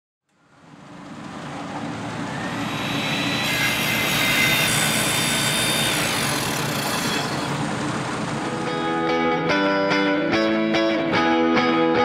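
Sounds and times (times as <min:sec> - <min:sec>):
faint high whistling tones: 0:02.2 - 0:03.5.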